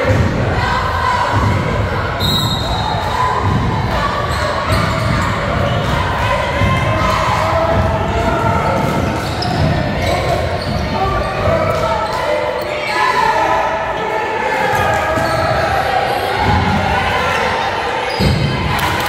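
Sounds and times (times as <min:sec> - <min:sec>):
murmur of crowd voices: 0:00.0 - 0:19.0
basketball bouncing: 0:03.4 - 0:11.0.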